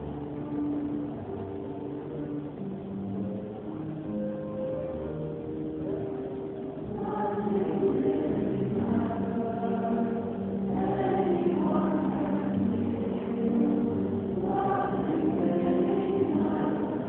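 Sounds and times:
choir singing in parts: 6.8 - 17.0.

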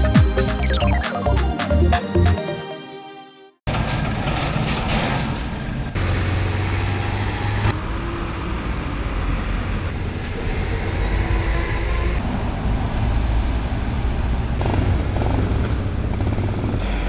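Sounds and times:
engine and traffic rumble: 3.7 - 17.0.

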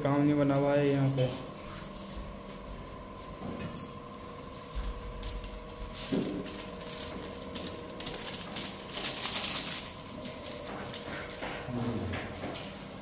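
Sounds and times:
steady mechanical hum: 0.0 - 13.0
rustling and scratching handling noise: 4.7 - 12.9.

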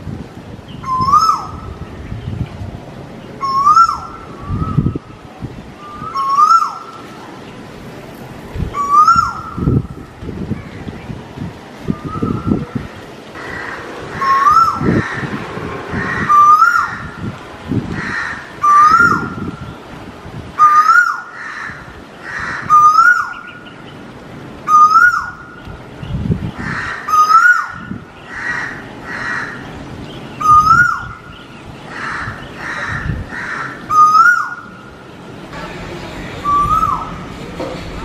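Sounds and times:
rough bird calls: 11.9 - 17.3
koel calling: 36.3 - 37.3.

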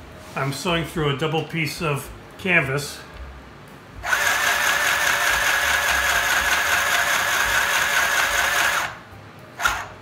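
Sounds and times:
sewing machine motor whine: 4.0 - 9.0, 9.6 - 10.0.

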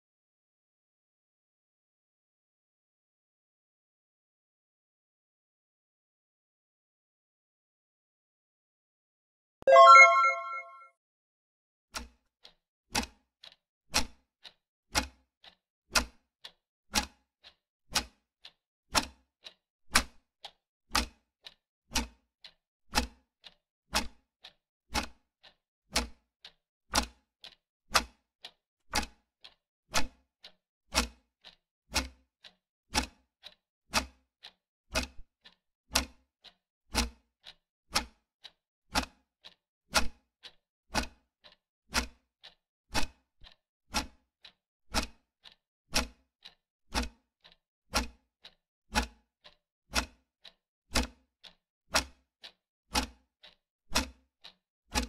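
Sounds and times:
clock ticking: 9.7 - 10.7, 21.0 - 24.2, 25.0 - 25.3, 25.9 - 28.2, 29.0 - 30.2, 31.0 - 32.2, 33.0 - 34.2, 39.0 - 55.0.

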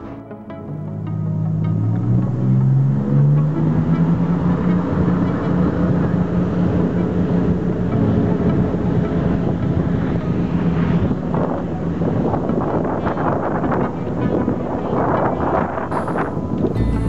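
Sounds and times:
wind noise on microphone: 0.0 - 17.0.

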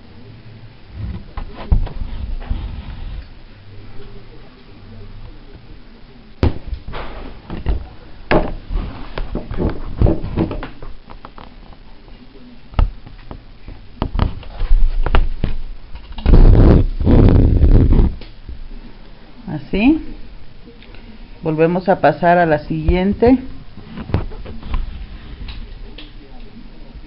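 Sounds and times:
thumps and rubbing: 1.0 - 3.4, 6.4 - 11.6, 12.8 - 18.3, 22.8 - 26.0.

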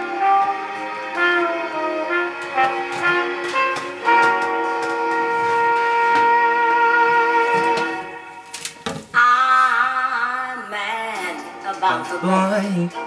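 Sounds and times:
saxophone and brass chord: 0.0 - 8.5.

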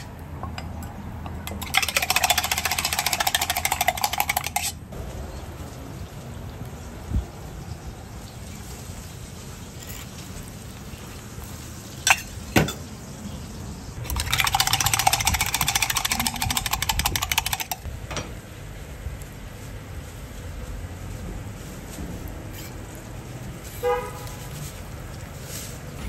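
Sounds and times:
egg beaten in steel pitcher: 1.2 - 4.8, 14.0 - 17.9.

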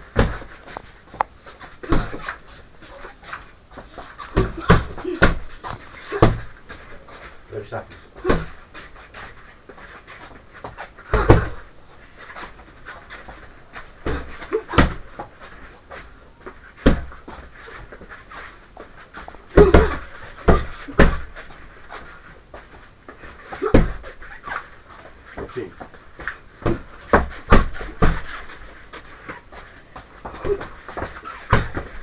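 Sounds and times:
gloved punches on body bag: 11.1 - 11.6, 19.6 - 21.3, 26.6 - 28.3, 31.5 - 32.0.

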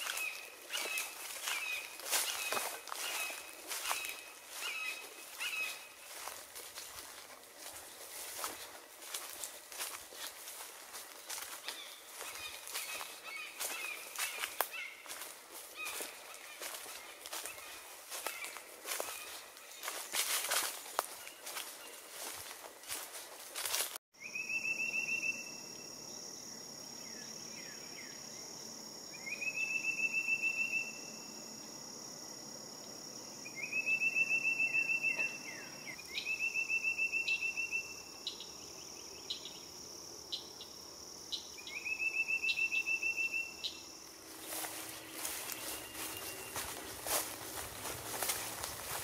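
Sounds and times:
bird trill: 0.0 - 6.4
footsteps on trail: 0.0 - 24.0, 44.1 - 49.0
high-pitched insect drone: 24.4 - 49.0.

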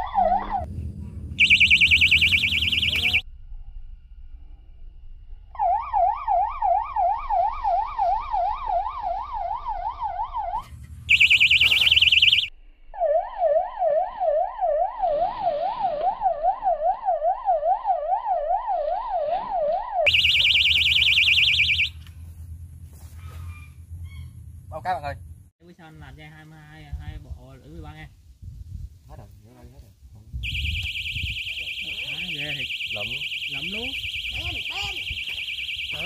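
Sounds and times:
electronic bite alarm wailing: 0.0 - 0.7, 1.4 - 3.2, 5.5 - 22.0, 30.4 - 36.0.

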